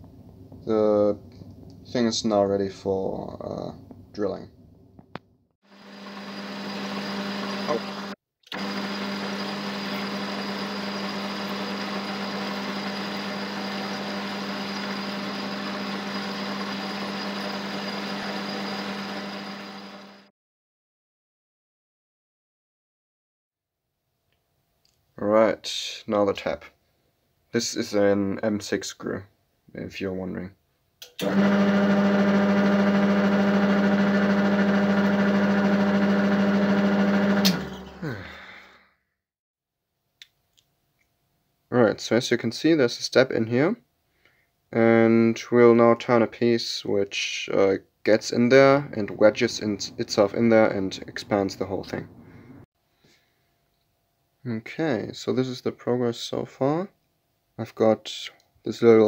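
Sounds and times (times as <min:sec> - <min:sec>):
drill boring into metal: 0:05.7 - 0:20.3, 0:31.2 - 0:38.2
metal lathe humming: 0:05.7 - 0:20.3, 0:31.2 - 0:38.2
sharp click: 0:31.0 - 0:31.3.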